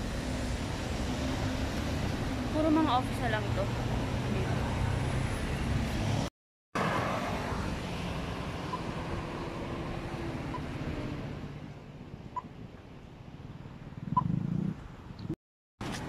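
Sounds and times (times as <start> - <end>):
passing cars rumble: 0.0 - 12.2.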